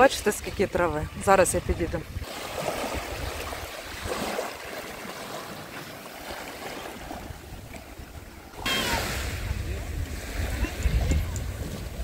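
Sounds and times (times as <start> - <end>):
wind rumbling on microphone: 0.0 - 4.4, 6.8 - 12.0
sea waves washing ashore: 0.0 - 12.0.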